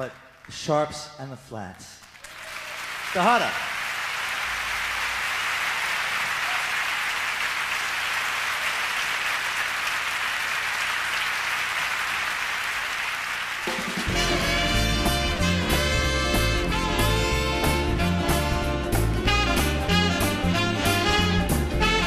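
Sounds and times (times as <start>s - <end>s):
audience applauding: 2.0s - 14.8s
swing big band playing: 13.7s - 22.0s.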